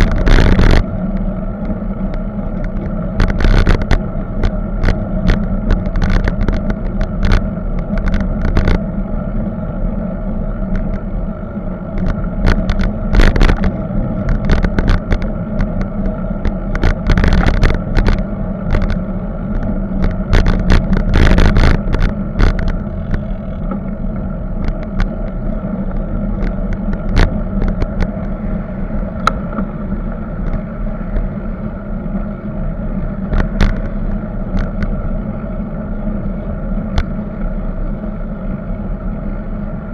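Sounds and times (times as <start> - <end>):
bicycle rattling and knocking: 0.0 - 9.6, 11.8 - 29.7
wind and tyre rumble: 0.0 - 39.9.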